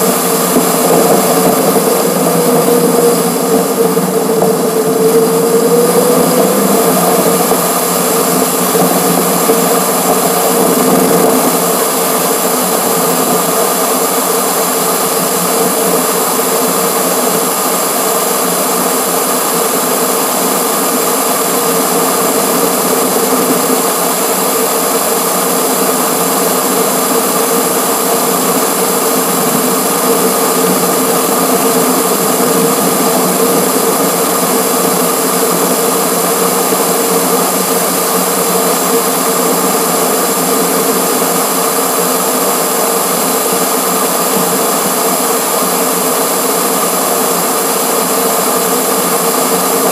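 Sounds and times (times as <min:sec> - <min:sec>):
constant whine: 0:00.0 - 0:49.9.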